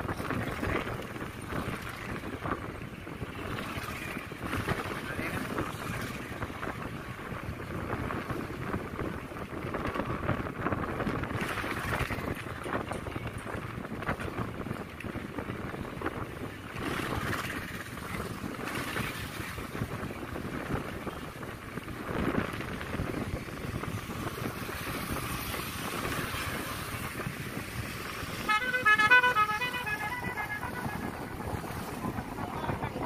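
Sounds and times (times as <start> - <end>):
vehicle running and wind noise: 0.0 - 33.0
vehicle horn short beeps: 28.4 - 31.5.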